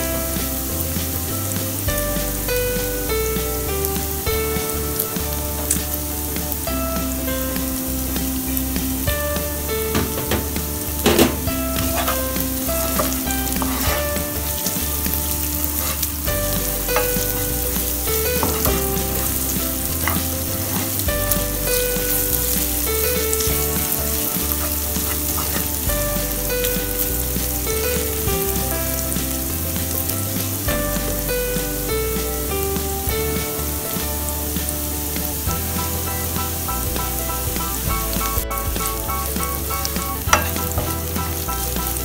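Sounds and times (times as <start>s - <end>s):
food sizzling in hot oil: 0.0s - 42.0s
wooden spatula scraping pan: 9.7s - 31.3s.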